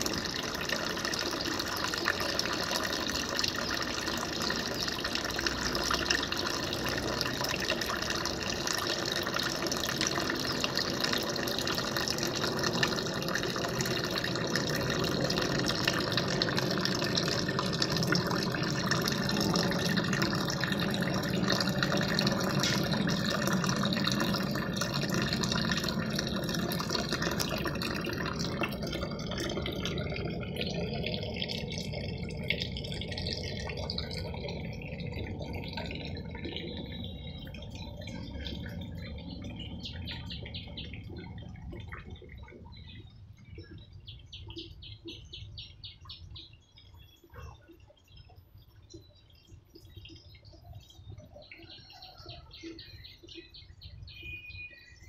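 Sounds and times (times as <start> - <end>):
water running: 0.0 - 44.0.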